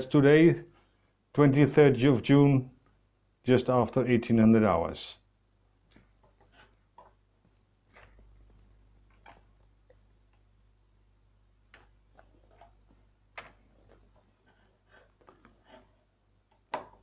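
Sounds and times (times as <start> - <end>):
faint irregular clicks and taps: 5.8 - 10.5, 11.6 - 17.0.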